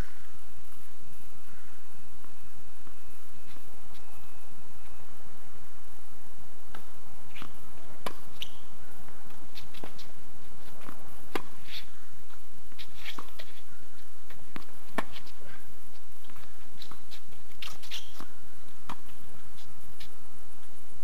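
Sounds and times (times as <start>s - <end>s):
background hiss: 0.0s - 21.0s
tennis ball struck by racquet: 6.7s - 8.6s, 10.8s - 11.9s, 14.5s - 15.4s.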